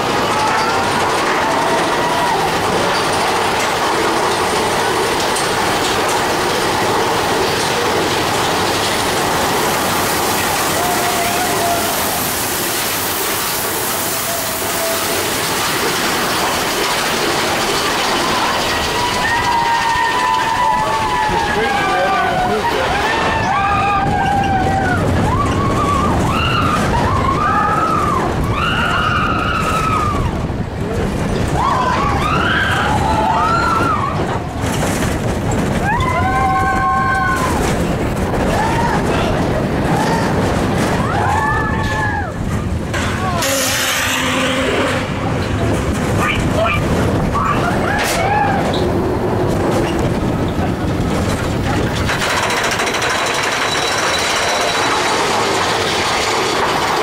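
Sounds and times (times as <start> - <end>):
roller coaster rumbling on track: 0.0 - 57.0
wheels squealing on curves: 10.3 - 30.5, 43.2 - 57.0
lift chain clanking: 49.6 - 57.0.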